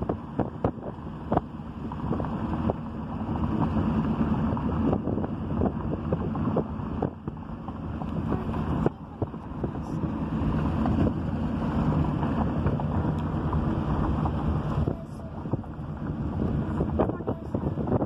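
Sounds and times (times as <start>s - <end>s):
car rumble: 0.0s - 18.0s
wind buffeting microphone: 0.0s - 18.0s.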